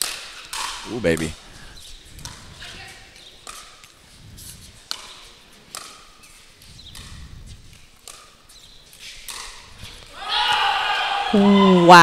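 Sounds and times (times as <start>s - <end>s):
paddles striking pickleball: 0.0s - 1.4s, 2.2s - 4.0s, 4.8s - 10.7s.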